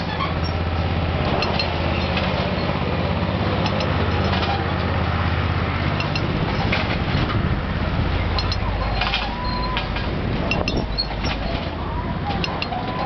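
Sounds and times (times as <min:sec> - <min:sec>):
machine motor drone pulsing: 0:00.0 - 0:13.0
metallic wire clicks: 0:01.2 - 0:02.5, 0:03.6 - 0:04.6, 0:05.9 - 0:07.0, 0:08.3 - 0:13.0.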